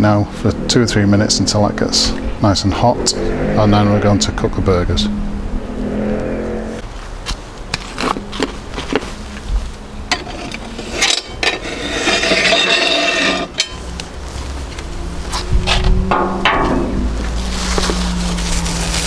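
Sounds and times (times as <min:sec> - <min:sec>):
skillet scraping across oven floor: 0:10.1 - 0:13.9.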